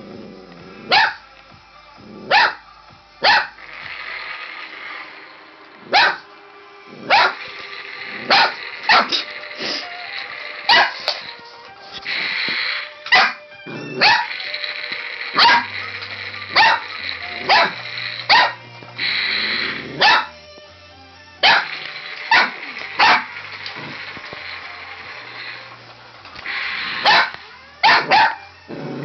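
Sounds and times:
puppy barking: 0.9s - 1.2s, 2.3s - 2.6s, 3.2s - 3.5s, 5.9s - 6.3s, 7.1s - 7.4s, 8.3s - 9.3s, 10.7s - 11.1s, 13.1s - 14.4s, 15.4s - 15.7s, 16.5s - 18.6s, 20.0s - 20.4s, 21.4s - 21.7s, 22.3s - 23.3s, 27.0s - 28.5s.

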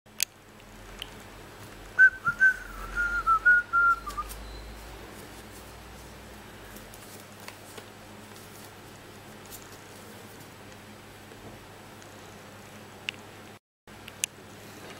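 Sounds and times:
person whistling: 2.0s - 4.7s
paper rustling: 4.0s - 10.8s.

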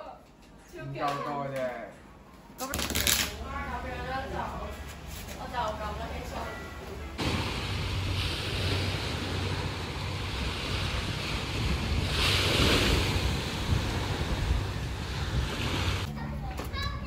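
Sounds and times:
small waves breaking on beach: 7.2s - 16.1s
wind buffeting microphone: 7.2s - 16.1s.

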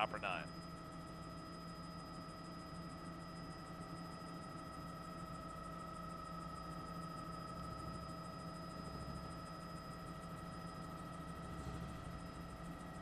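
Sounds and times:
helicopter cabin and engine noise: 0.0s - 13.0s.

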